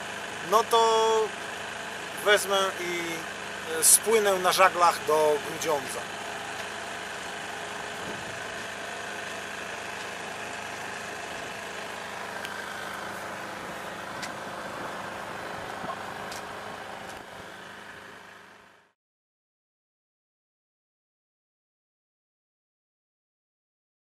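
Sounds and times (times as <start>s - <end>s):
small outboard motor running: 0.0s - 19.0s.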